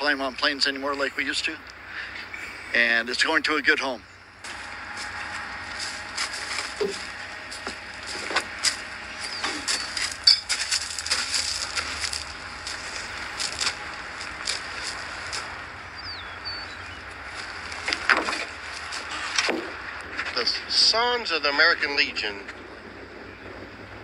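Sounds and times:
steady outdoor hiss: 0.0s - 24.0s
sling knocks and rustles: 4.4s - 15.5s, 17.4s - 20.4s.

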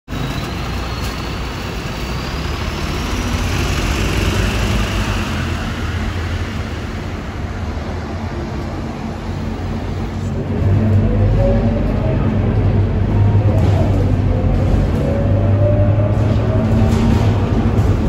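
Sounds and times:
bus diesel engine running: 0.1s - 18.0s
street traffic noise: 0.1s - 18.0s.

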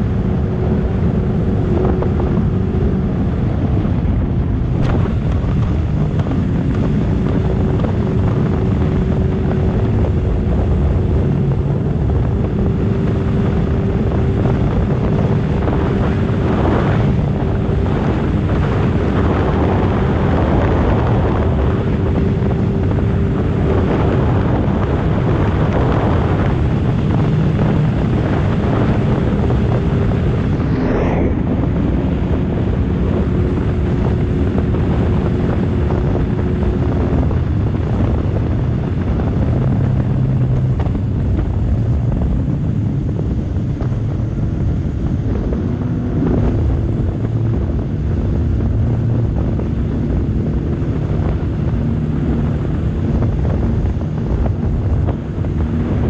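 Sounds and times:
watercraft engine drone: 0.0s - 56.0s
wind on microphone: 0.0s - 56.0s
short whoosh: 29.4s - 32.9s.

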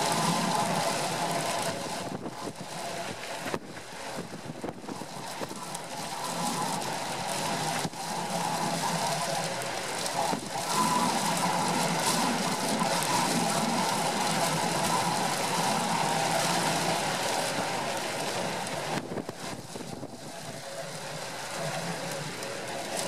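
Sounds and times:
storm wind: 0.0s - 5.6s, 18.6s - 20.7s.

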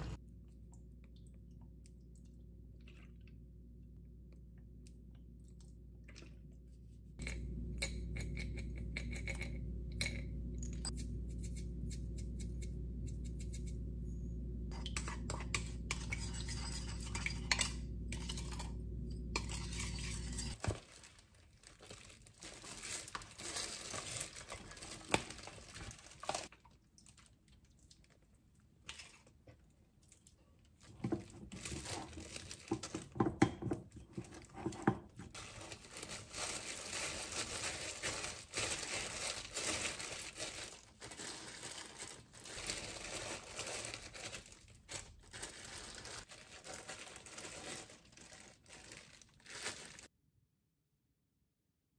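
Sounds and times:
steady low hum: 0.0s - 20.6s
wooden spoon scraping glass bowl: 19.4s - 20.6s.

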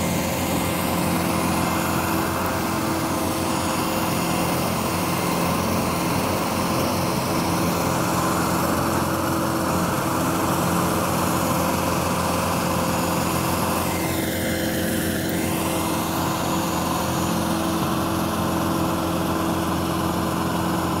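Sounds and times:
stump grinder engine humming: 0.0s - 21.0s.

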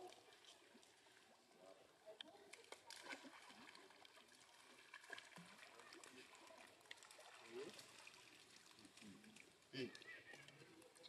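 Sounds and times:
faint distant voices: 0.0s - 11.0s.

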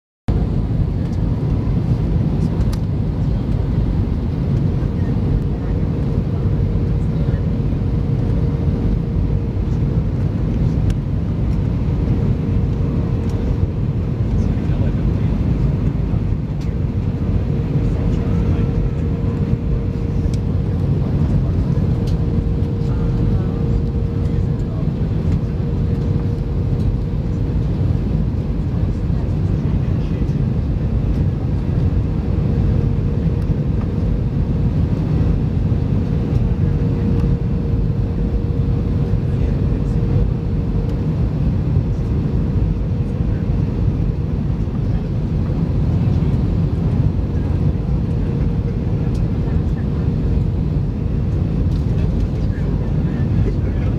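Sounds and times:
jet engine and airflow noise: 0.3s - 53.9s.

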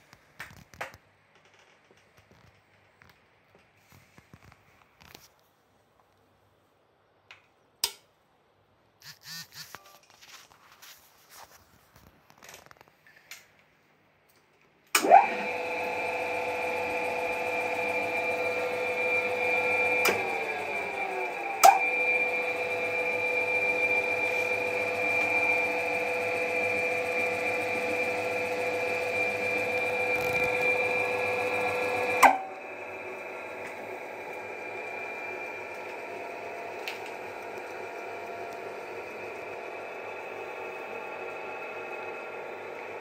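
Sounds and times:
drill press motor whine: 15.0s - 43.0s.

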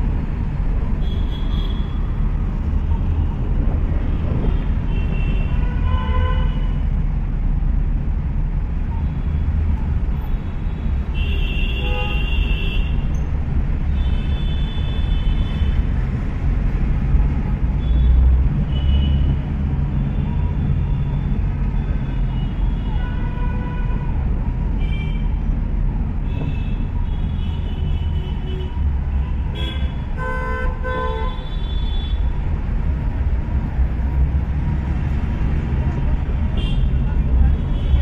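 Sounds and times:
traffic rumble: 0.0s - 38.0s.

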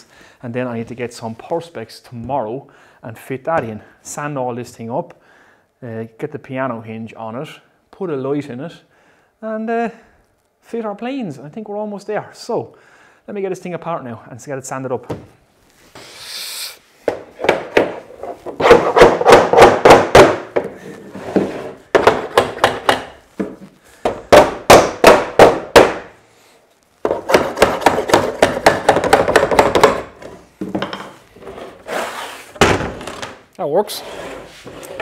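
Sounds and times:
hammer striking wooden frame: 18.6s - 20.7s, 21.9s - 23.2s, 24.0s - 26.2s, 27.1s - 30.2s.

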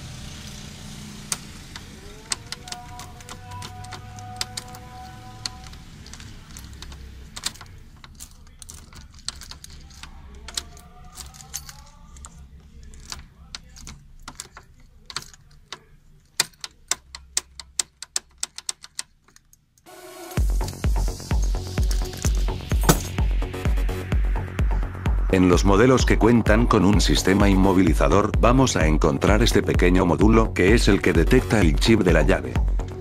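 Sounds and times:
key clicking in ignition lock: 1.3s - 19.7s
key ring jangling: 2.2s - 19.6s.

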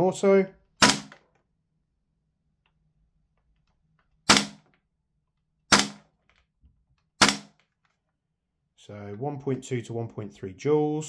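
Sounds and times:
airsoft rifle shots: 0.8s - 1.2s, 4.3s - 4.7s, 5.7s - 6.1s, 7.2s - 7.6s.

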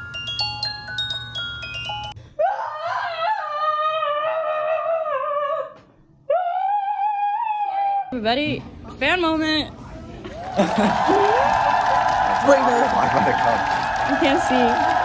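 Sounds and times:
high wavering held notes: 0.0s - 2.2s
plinking glockenspiel tune: 0.0s - 2.2s.

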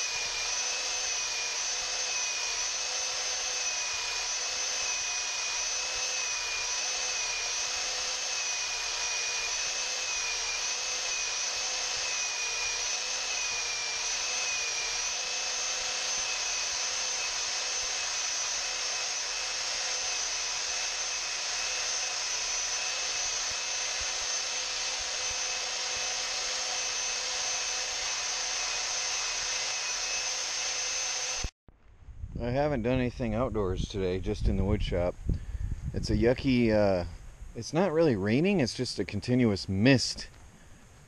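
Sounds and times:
belt sander running: 0.0s - 31.5s.

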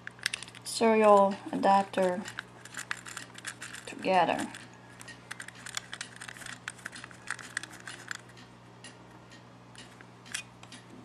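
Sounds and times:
cable plug clicks and rattles: 0.0s - 1.3s, 2.0s - 8.2s.

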